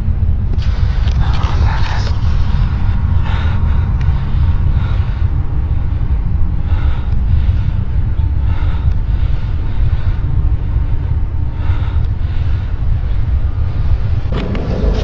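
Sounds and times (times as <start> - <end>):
low rumbling drone: 0.0 - 15.0.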